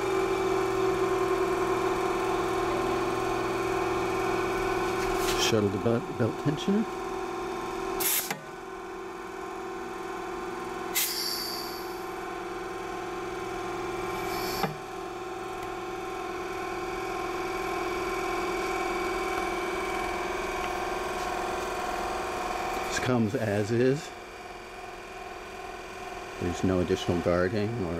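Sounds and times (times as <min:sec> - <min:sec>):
short hiss of air: 0:08.0 - 0:08.4, 0:11.0 - 0:11.8
belt sander motor humming: 0:11.8 - 0:24.0.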